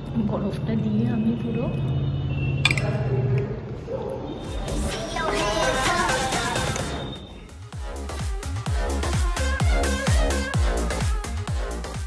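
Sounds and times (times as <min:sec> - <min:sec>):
background music: 0:04.9 - 0:12.0.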